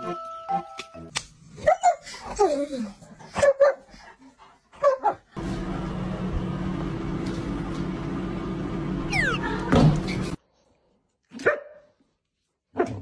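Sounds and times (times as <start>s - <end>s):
dog whining: 9.1s - 9.7s.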